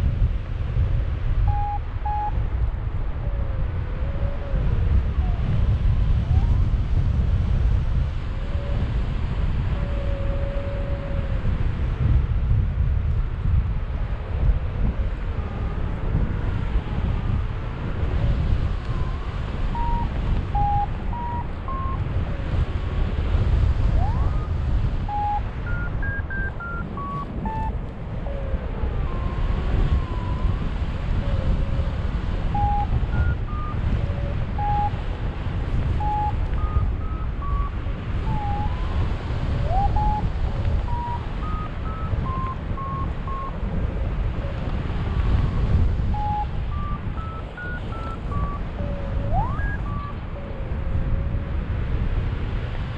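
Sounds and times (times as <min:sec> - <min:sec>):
wind rushing over microphone: 0:00.0 - 0:52.9
variometer beeping: 0:01.5 - 0:02.4, 0:19.7 - 0:22.0, 0:24.0 - 0:27.9, 0:32.5 - 0:35.0, 0:35.8 - 0:43.6, 0:46.1 - 0:50.5.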